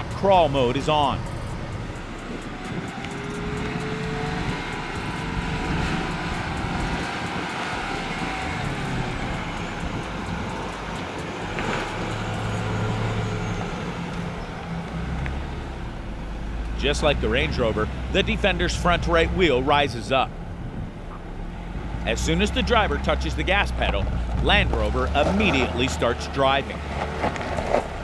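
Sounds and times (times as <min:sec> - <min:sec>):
engine running at low revs: 0:00.0 - 0:28.0
wind rushing: 0:00.8 - 0:12.0.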